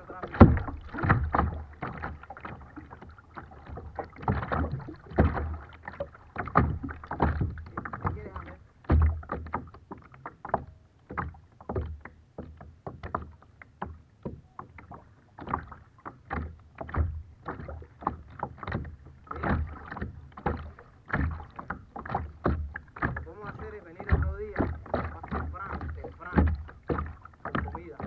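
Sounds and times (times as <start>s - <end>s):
dull low knock: 0.0s - 2.1s, 6.4s - 9.7s, 16.3s - 28.0s
waves splashing against kayak hull: 0.0s - 28.0s.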